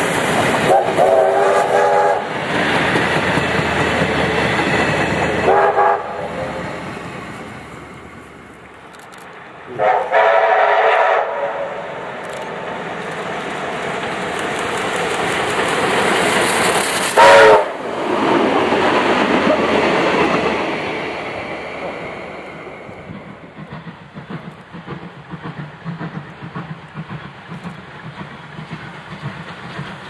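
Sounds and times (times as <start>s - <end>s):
train running noise: 0.0s - 30.0s
steam locomotive whistle: 0.6s - 2.4s, 5.3s - 6.8s, 9.7s - 11.9s, 17.1s - 17.9s.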